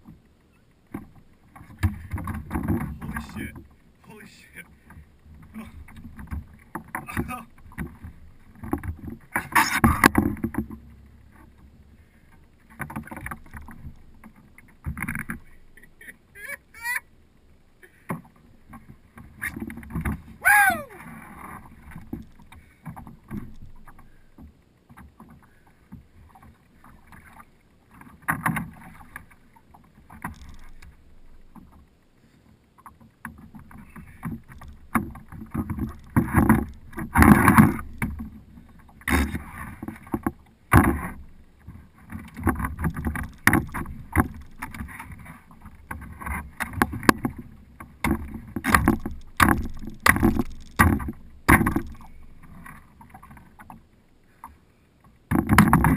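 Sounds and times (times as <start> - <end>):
knocks and thumps on plastic hull: 0.9 - 3.8, 4.8 - 11.7, 33.2 - 53.8, 55.3 - 55.9.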